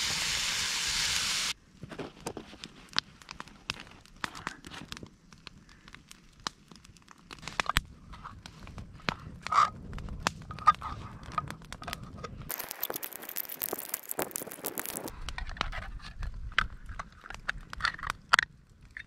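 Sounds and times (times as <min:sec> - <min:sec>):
steady hiss: 0:00.0 - 0:01.6.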